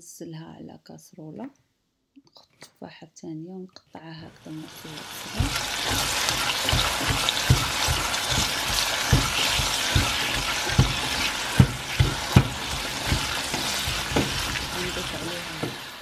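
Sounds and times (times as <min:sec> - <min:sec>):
apple sizzling in a pan: 0:04.4 - 0:16.0
spatula knocking on pan: 0:05.2 - 0:16.0.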